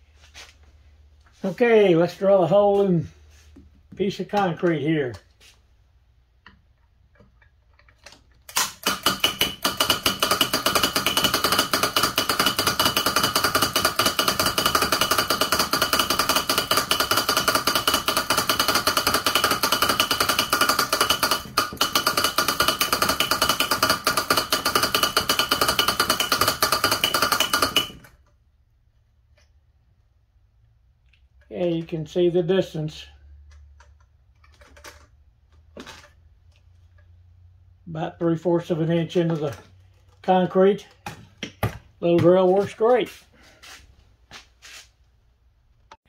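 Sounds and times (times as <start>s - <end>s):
hand-cranked hammer drill tapping: 8.8s - 28.1s.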